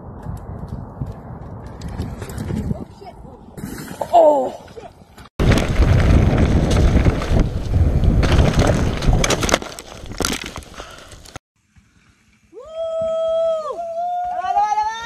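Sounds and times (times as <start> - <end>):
wind rushing over microphone: 0.0 - 3.7, 5.4 - 10.2.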